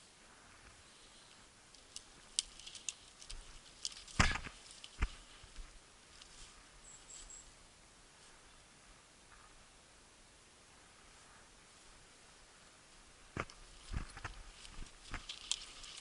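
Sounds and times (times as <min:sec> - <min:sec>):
twigs snapping and scraping: 0:00.8 - 0:06.6, 0:13.3 - 0:16.0
faint brushing: 0:13.6 - 0:16.0.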